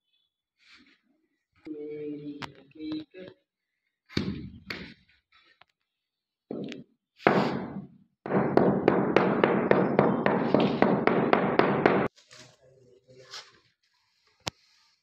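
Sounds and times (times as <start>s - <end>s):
wooden handle knocking on tile: 8.3s - 12.1s.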